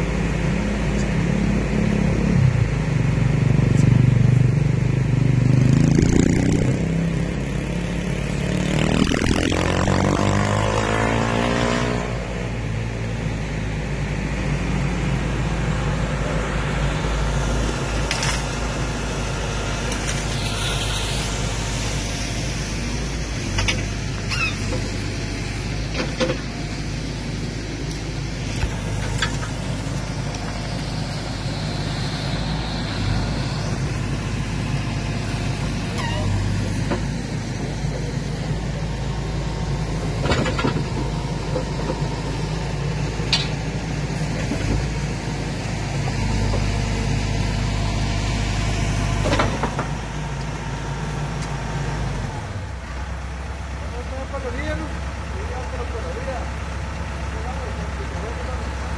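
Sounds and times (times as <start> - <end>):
diesel engine idling: 12.4 - 58.9.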